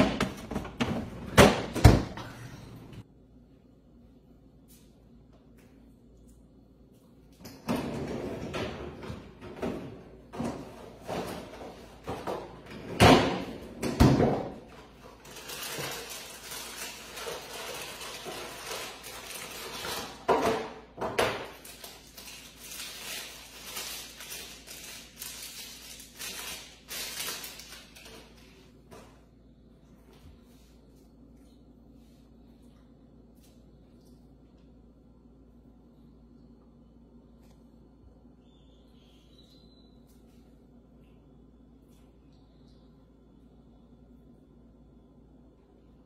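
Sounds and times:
plastic wrapper crinkling and tearing: 15.2s - 20.2s, 21.5s - 28.4s.

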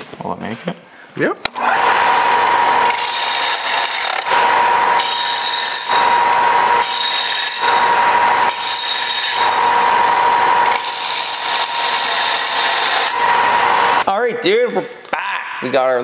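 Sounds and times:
belt sander whining: 1.5s - 14.1s
metal rasping on abrasive belt: 1.6s - 14.0s.

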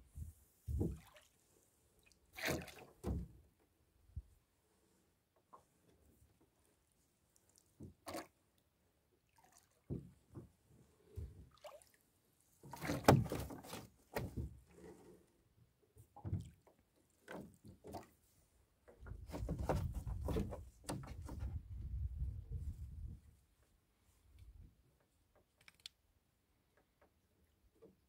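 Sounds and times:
water dripping and splashing: 0.9s - 1.3s, 11.5s - 12.0s.

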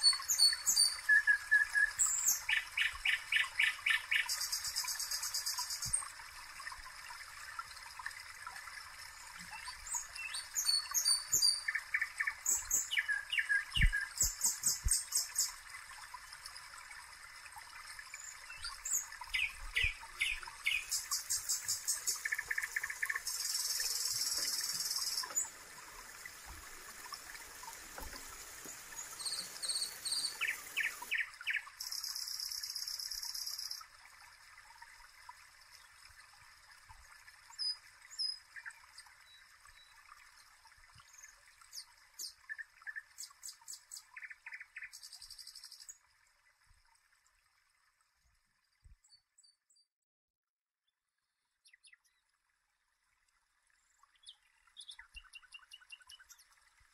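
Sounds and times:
birds chirping and trilling: 0.0s - 5.9s, 9.5s - 15.6s, 18.2s - 25.6s, 28.0s - 33.8s
trickling water: 0.0s - 49.8s, 50.9s - 56.9s.

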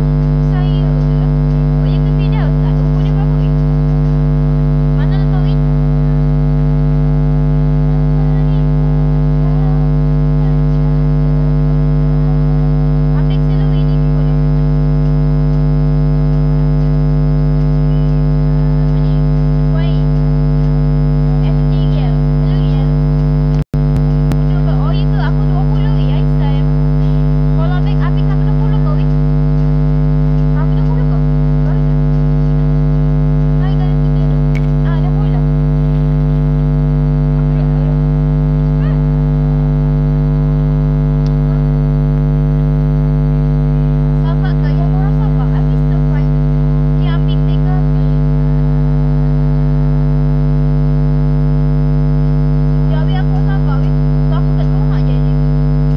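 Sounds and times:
faint voice: 0.0s - 5.7s, 7.9s - 11.0s, 12.1s - 14.5s, 17.8s - 20.1s, 33.5s - 36.0s, 37.3s - 39.2s, 44.2s - 48.8s
loud electrical hum: 0.0s - 55.9s.

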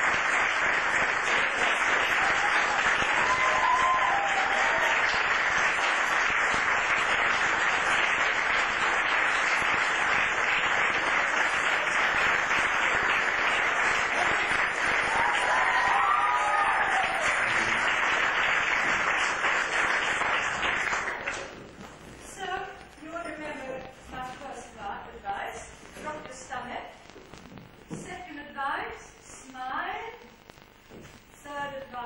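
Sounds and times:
audience applauding: 0.0s - 21.8s.

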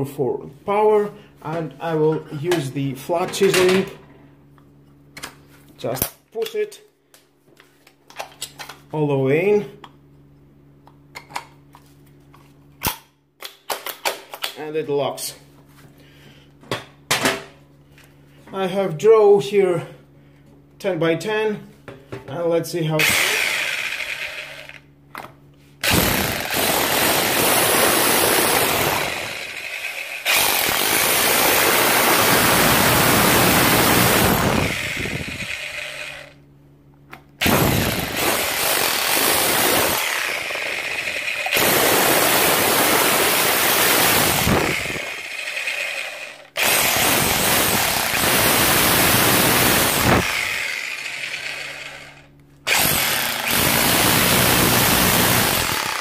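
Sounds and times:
hammer drill chiselling a wall: 23.0s - 24.9s, 25.8s - 36.4s, 37.4s - 56.0s.

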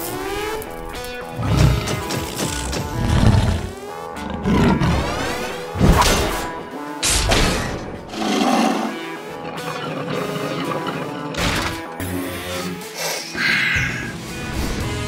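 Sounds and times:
dramatic soundtrack music: 0.0s - 15.0s
robot dinosaur roar: 1.4s - 5.2s, 8.1s - 11.3s.

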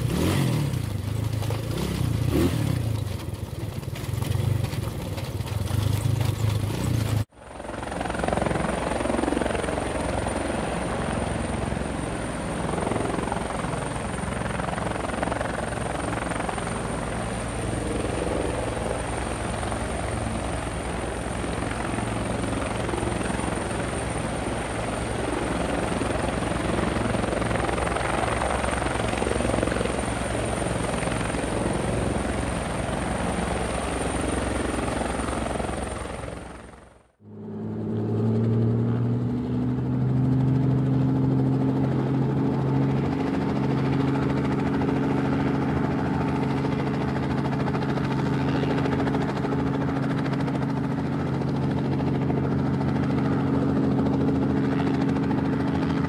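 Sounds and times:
drone propellers buzzing: 37.2s - 49.2s.

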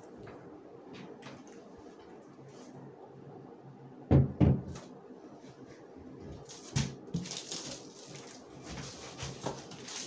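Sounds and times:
cardboard and tape scraping: 6.5s - 10.0s.

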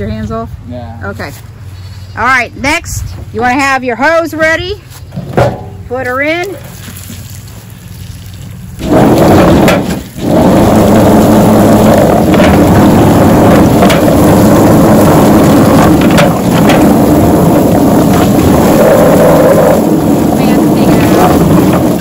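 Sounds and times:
hose spraying water: 6.1s - 22.0s
electric plucker drum spinning: 8.4s - 22.0s.

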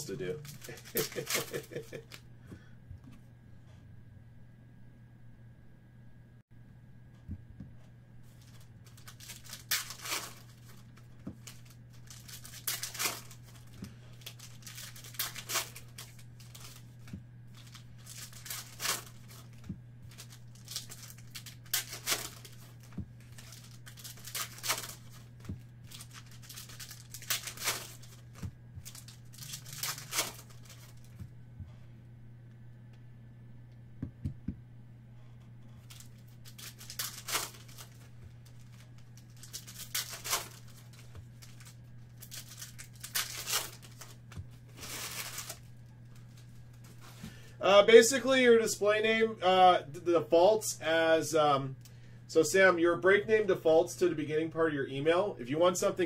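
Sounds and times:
foil wrappers tearing and crinkling: 0.0s - 2.1s, 8.3s - 31.2s, 35.8s - 47.1s.

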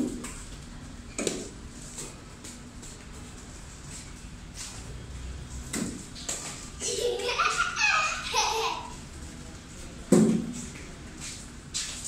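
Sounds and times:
child laughing: 6.8s - 9.0s.

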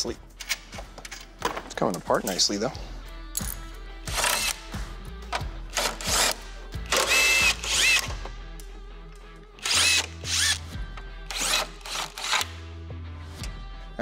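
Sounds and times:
cordless power driver whining: 6.1s - 8.2s, 9.6s - 10.7s.

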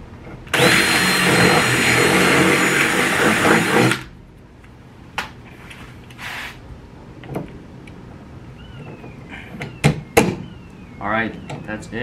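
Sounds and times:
short rush of noise: 5.8s - 6.6s
faint falling squeak: 8.6s - 11.8s.

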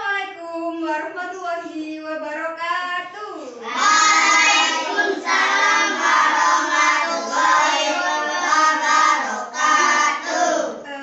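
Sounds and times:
children singing together: 3.6s - 10.8s.

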